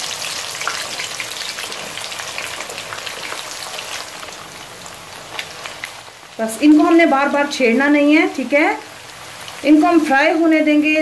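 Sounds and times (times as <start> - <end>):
potatoes deep-frying in oil: 0.0 - 11.0.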